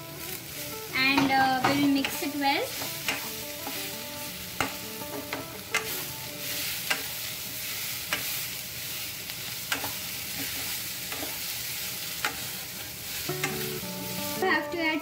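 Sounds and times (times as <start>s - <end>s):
potatoes sizzling in oil: 0.0s - 15.0s
wooden spatula knocking pan: 1.1s - 3.9s.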